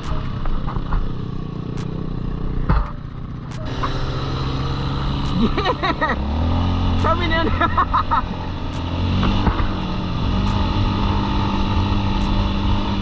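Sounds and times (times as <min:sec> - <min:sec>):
dirt bike engines running: 0:00.0 - 0:13.0
wavering high-pitched sound: 0:02.7 - 0:07.6.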